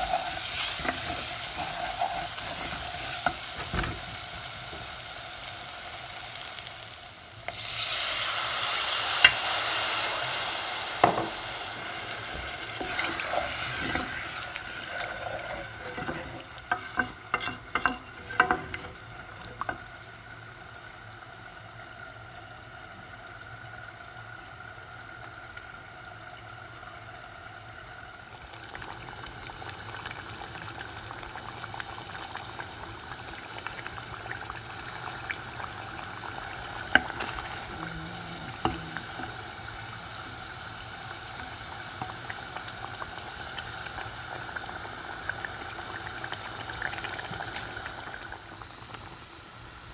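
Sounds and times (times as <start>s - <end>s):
curry bubbling in a pot: 27.6s - 49.6s.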